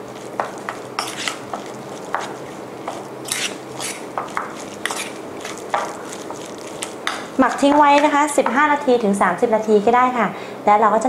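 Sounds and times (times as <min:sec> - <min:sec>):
metal spoon scraping metal bowl: 0:00.7 - 0:02.6, 0:03.2 - 0:06.9.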